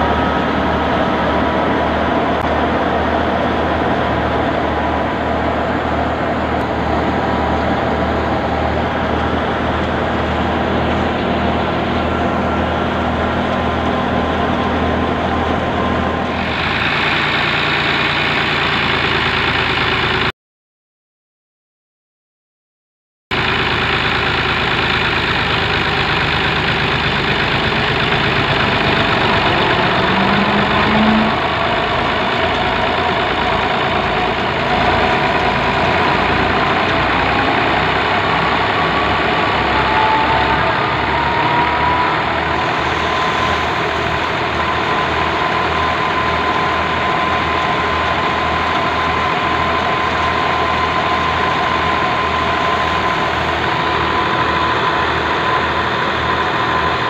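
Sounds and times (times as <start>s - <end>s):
tractor diesel engine running: 0.0s - 20.3s, 23.3s - 57.0s
thresher thin whine: 27.5s - 57.0s.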